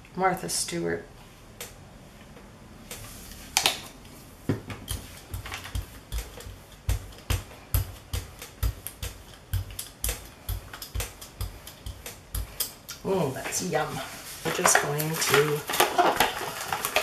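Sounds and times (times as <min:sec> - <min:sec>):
roller rolling through wet paint: 0:13.2 - 0:17.0.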